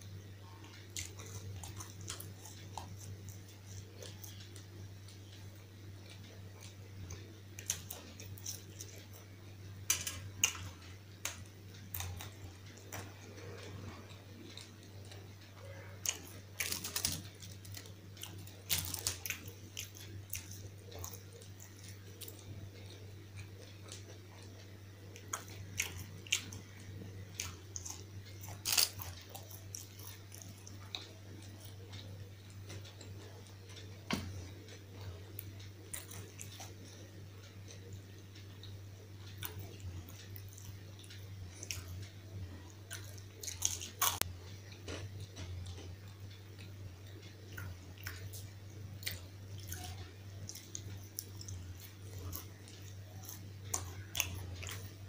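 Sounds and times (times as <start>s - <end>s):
crisp bites and chewing: 16.0s - 22.4s, 25.2s - 33.0s.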